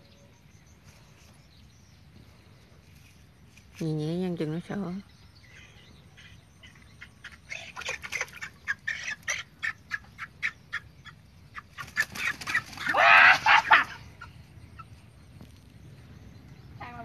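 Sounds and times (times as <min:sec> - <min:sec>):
chicken squawking: 0:06.2 - 0:14.3.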